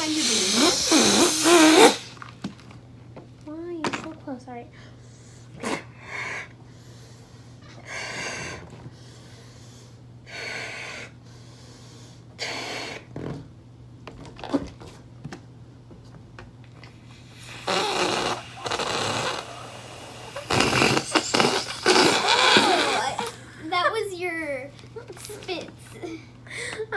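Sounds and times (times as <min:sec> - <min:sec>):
puffs of breath into balloon: 0:00.0 - 0:02.2, 0:17.0 - 0:23.3
air sputtering out of balloon: 0:00.0 - 0:02.3, 0:07.8 - 0:08.7, 0:16.8 - 0:23.4.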